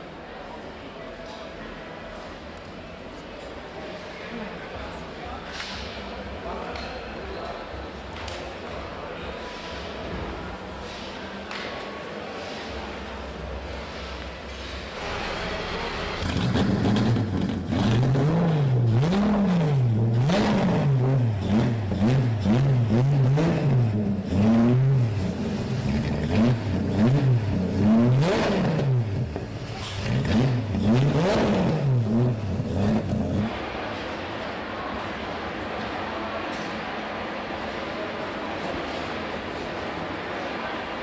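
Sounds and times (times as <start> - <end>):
car engine revving: 13.9 - 33.8.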